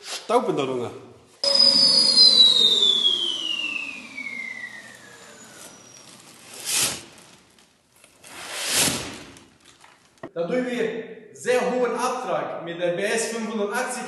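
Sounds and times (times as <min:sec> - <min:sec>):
dust extractor motor winding down: 0:01.4 - 0:07.6
dust whooshing into bag: 0:05.2 - 0:07.6, 0:08.2 - 0:09.6.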